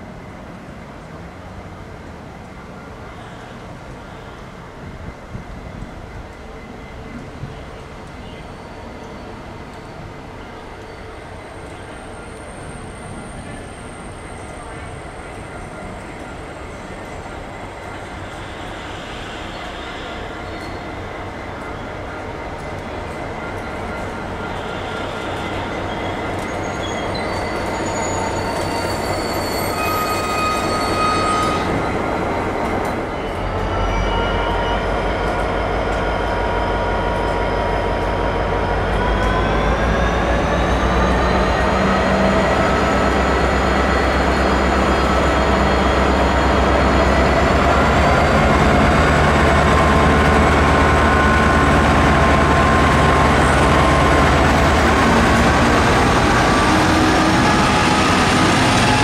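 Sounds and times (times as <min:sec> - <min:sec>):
locomotive engine drone: 0:00.0 - 0:59.0
wheels squealing: 0:24.6 - 0:37.6.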